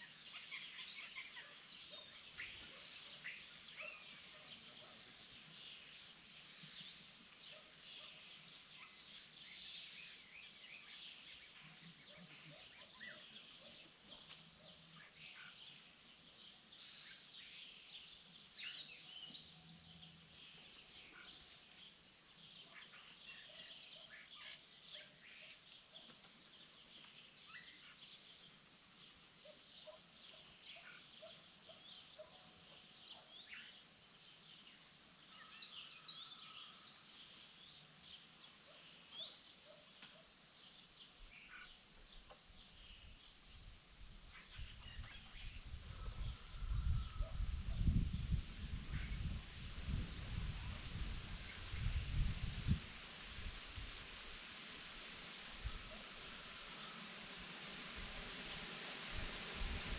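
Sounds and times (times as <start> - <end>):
songbird chirps and trills: 0.0 - 59.9
cricket chirping: 25.9 - 59.9.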